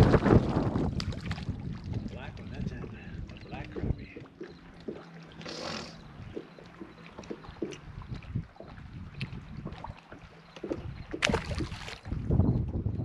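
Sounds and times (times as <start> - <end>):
handling knocks and clicks in boat: 0.0 - 13.0.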